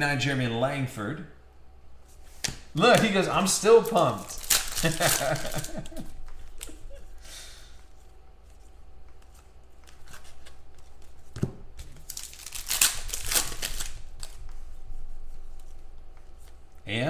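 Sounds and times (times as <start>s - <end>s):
foil wrapper tearing and crinkling: 3.8s - 6.0s, 11.9s - 14.4s.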